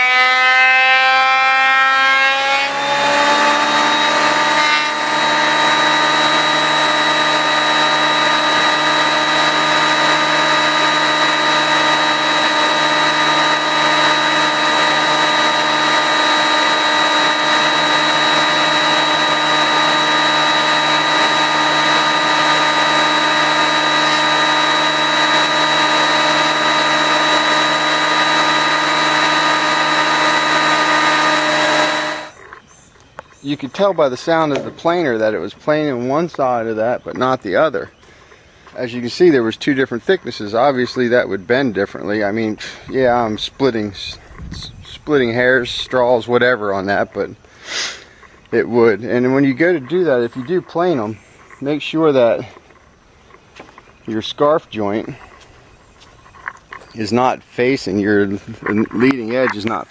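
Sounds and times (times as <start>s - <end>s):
planer knives cutting wood: 0.0s - 32.6s
planer motor whine: 0.0s - 39.6s.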